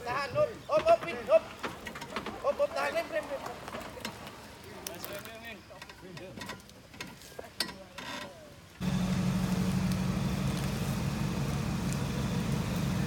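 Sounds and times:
engine running steadily: 8.8s - 13.0s.

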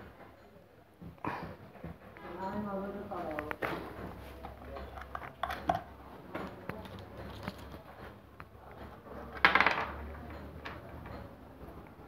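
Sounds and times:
wire leads clicking and clinking: 3.3s - 12.0s.

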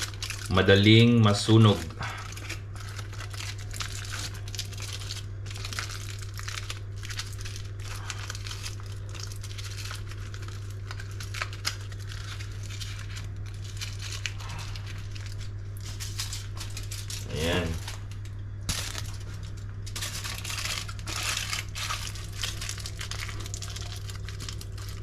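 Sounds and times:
aluminium foil crinkling: 0.0s - 25.0s
steady low hum: 0.0s - 25.0s.

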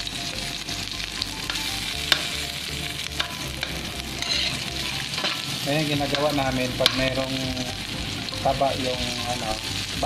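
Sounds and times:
meat sizzling in a wok: 0.0s - 10.0s
metal spatula scraping a pan: 1.4s - 2.4s, 3.0s - 7.3s.

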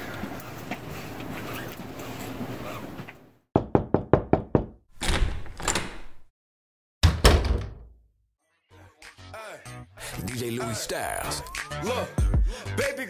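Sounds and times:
knocking on a door: 3.6s - 4.9s.

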